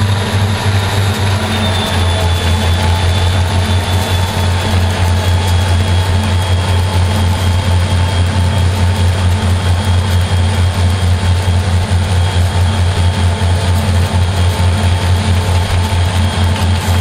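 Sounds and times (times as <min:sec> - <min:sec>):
faint high whine: 0:00.0 - 0:10.8
diesel locomotive engine droning: 0:00.0 - 0:17.0
wind and road noise: 0:10.8 - 0:17.0.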